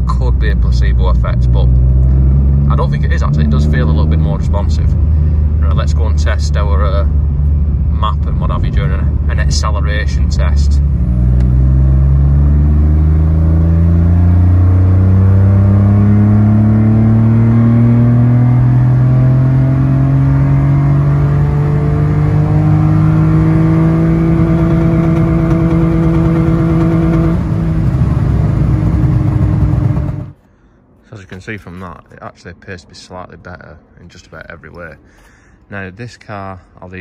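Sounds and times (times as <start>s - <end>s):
car engine accelerating hard: 0.6s - 30.4s.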